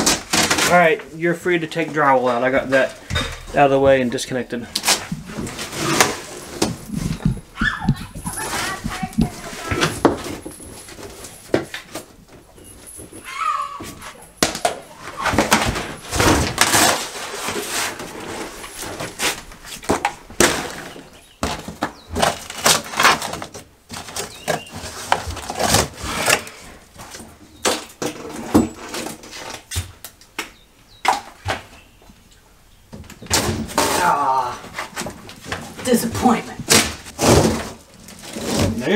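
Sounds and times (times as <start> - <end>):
drywall tearing and cracking: 0.0 - 1.0, 4.7 - 7.4, 14.4 - 26.6, 33.2 - 38.9.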